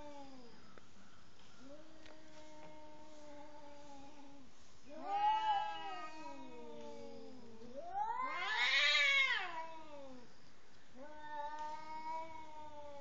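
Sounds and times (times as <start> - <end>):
cats yowling: 4.9 - 10.3.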